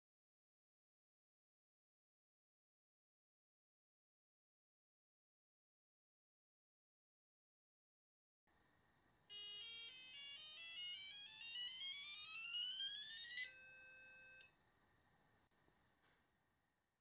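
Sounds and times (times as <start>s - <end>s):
computer self-test beeps: 9.3s - 14.5s.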